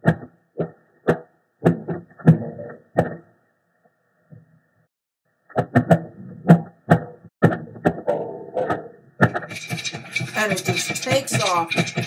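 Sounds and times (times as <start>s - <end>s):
popcorn popping: 7.4s - 12.0s.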